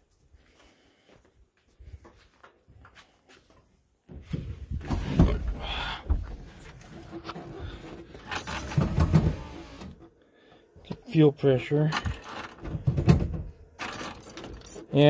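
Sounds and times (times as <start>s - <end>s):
rustling and creaking car seat: 4.4s - 10.1s.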